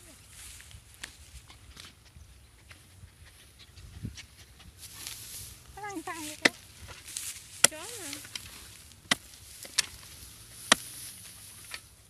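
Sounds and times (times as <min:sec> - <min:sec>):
hoe chopping into dry soil: 0:06.2 - 0:12.0
soil clods knocking: 0:06.4 - 0:11.9.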